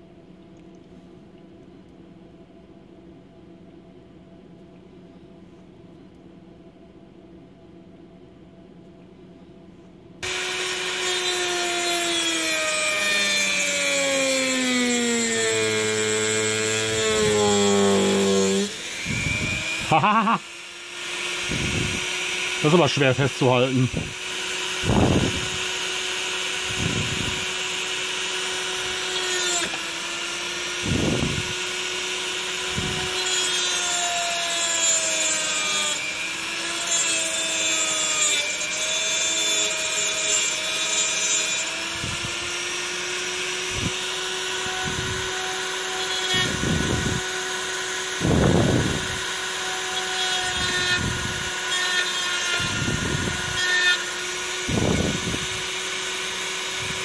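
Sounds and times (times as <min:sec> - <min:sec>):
rotary tool cutting metal: 0:10.2 - 0:57.0.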